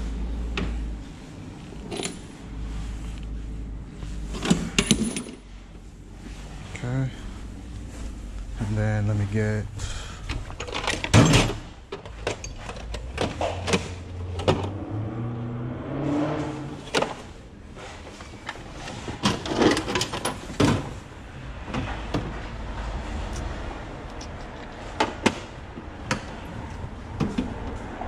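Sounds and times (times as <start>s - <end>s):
tools clattering: 1.8s - 2.4s, 4.3s - 5.6s, 10.3s - 14.6s
steel drawers sliding: 16.7s - 21.0s.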